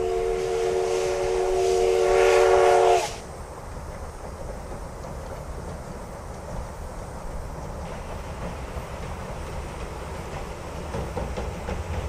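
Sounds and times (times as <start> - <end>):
steam locomotive whistle: 0.0 - 3.3
train rumbling: 0.0 - 12.0.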